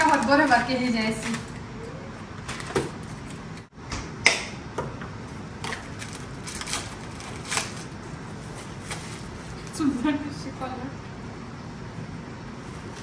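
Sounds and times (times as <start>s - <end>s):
plastic packaging crinkling: 0.0s - 1.6s, 5.8s - 9.6s.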